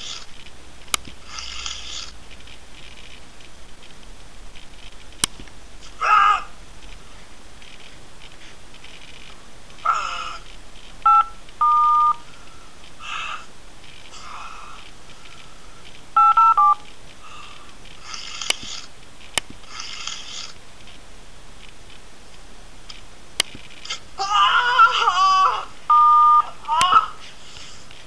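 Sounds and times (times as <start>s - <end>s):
telephone keypad beeps: 11.1s - 12.2s, 16.2s - 16.8s, 25.9s - 26.5s.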